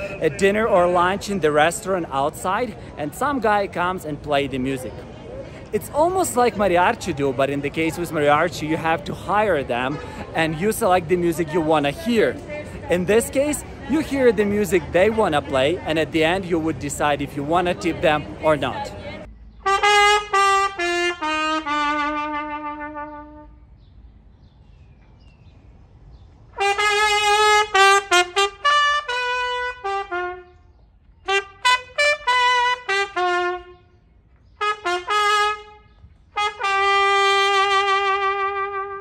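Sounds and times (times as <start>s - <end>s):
solo trumpet playing: 19.6s - 23.6s, 26.6s - 30.6s, 31.3s - 33.9s, 34.6s - 39.0s.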